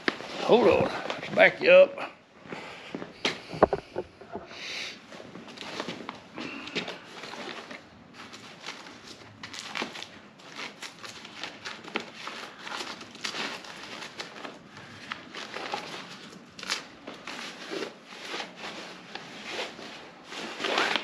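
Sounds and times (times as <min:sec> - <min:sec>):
fabric and wrapping rustling: 0:00.0 - 0:21.0.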